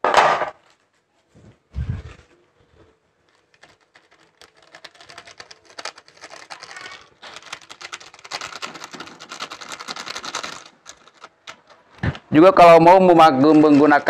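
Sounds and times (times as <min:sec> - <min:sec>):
plastic sachet crinkling and tearing: 0:02.0 - 0:12.3.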